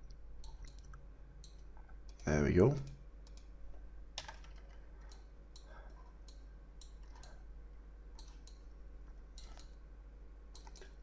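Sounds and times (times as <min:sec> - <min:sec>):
low steady hum: 0:00.0 - 0:11.0
mouse and keyboard clicks: 0:09.4 - 0:09.8, 0:10.6 - 0:11.0.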